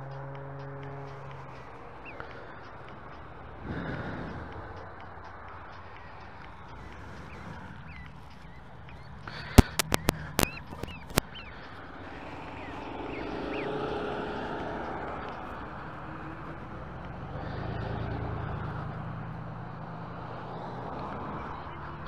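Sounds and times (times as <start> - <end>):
sharp clicks: 0.0 - 16.7
vehicles passing: 0.0 - 22.0
gosling peeping: 4.7 - 15.5.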